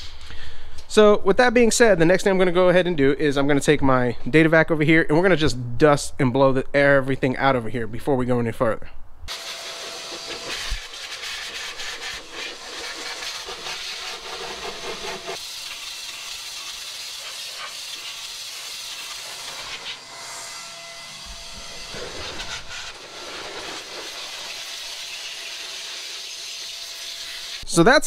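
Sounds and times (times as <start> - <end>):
air duster hissing: 9.3 - 20.5, 21.2 - 27.6.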